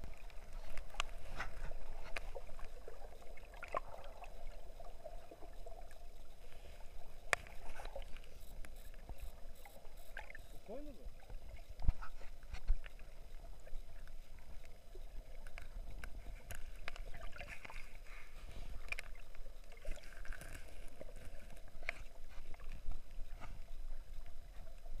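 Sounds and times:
underwater clicks and crackles: 0.0 - 25.0.

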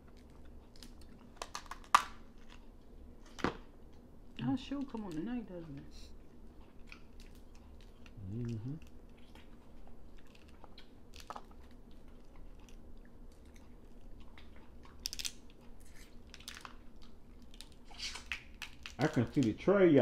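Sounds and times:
chewing and mouth sounds: 0.0 - 3.0, 6.1 - 19.4
crab shell cracking: 0.1 - 2.6, 10.2 - 13.6, 14.4 - 19.6
person humming: 8.2 - 8.8.

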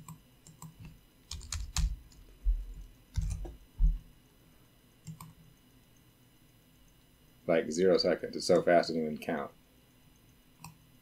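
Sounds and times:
keyboard keys tapped: 0.0 - 2.6, 3.2 - 4.0.

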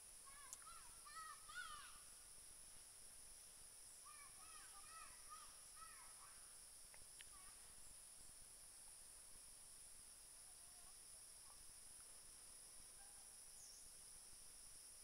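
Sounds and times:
bird calling faintly: 0.0 - 2.2, 3.2 - 8.4
high drone of insects: 0.0 - 15.0.

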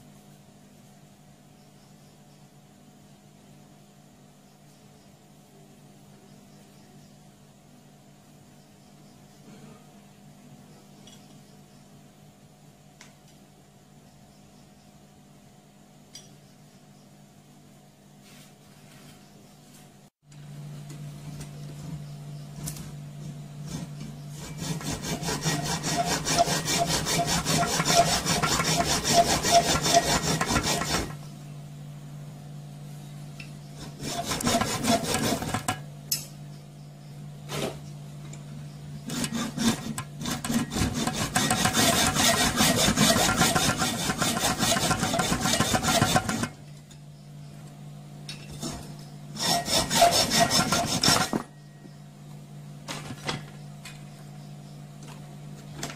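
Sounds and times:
hand saw cutting metal: 23.6 - 31.2, 33.8 - 35.8, 39.0 - 46.6, 48.6 - 51.5.

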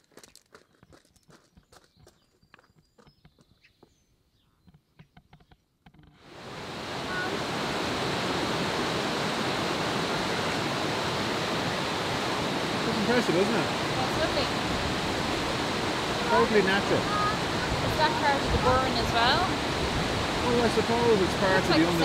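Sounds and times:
river rushing over rocks: 6.2 - 22.0.

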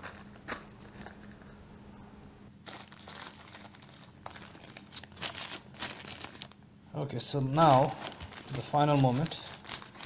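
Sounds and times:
plastic wrap crinkling: 2.6 - 6.6, 7.3 - 10.0.

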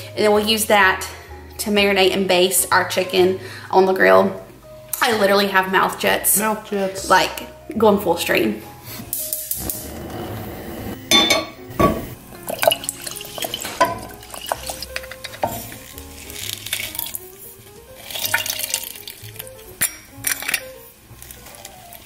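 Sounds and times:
background music: 0.0 - 22.0
saucepan and utensils clinking: 11.0 - 17.4, 18.0 - 22.0
liquid pouring into a pan: 12.3 - 19.7.

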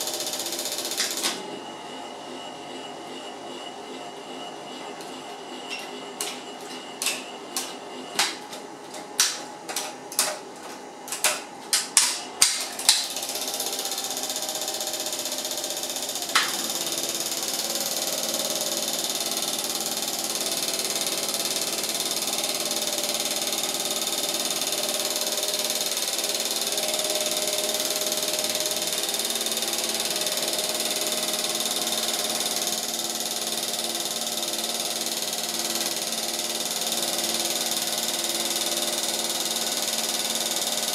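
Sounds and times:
film projector clacking: 0.0 - 1.4, 7.0 - 40.9
projector whirring: 0.0 - 40.9.

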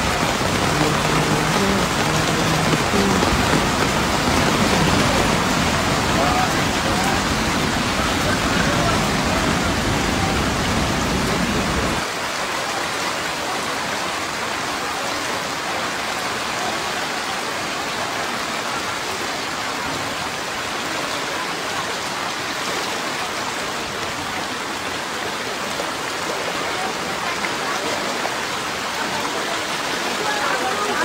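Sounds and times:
floodwater rushing: 0.0 - 31.0
heavy rain falling: 0.0 - 31.0.

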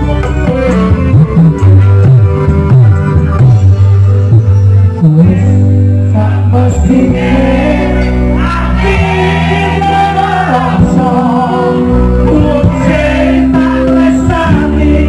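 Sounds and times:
live band playing: 0.0 - 15.0
man singing into microphone: 5.0 - 15.0.

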